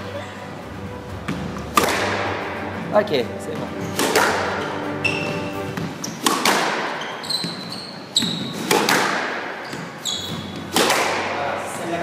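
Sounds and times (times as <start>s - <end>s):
squash ball hitting rackets and walls: 1.2s - 2.9s, 3.5s - 11.6s
shoe squeaks on wooden floor: 3.7s - 4.0s, 5.0s - 8.7s, 9.6s - 10.7s.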